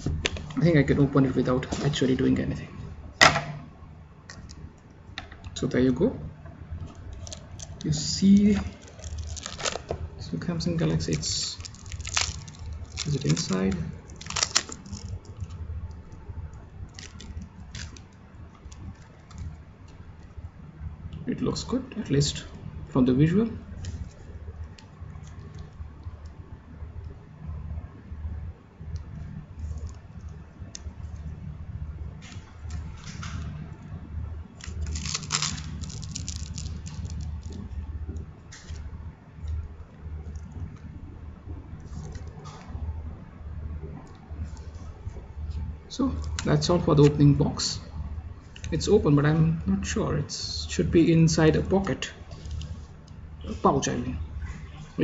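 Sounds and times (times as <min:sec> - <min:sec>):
low steady hum: 0:00.0 - 0:55.0
plastic wrap crackling: 0:06.8 - 0:16.1, 0:16.8 - 0:20.0, 0:34.6 - 0:37.8.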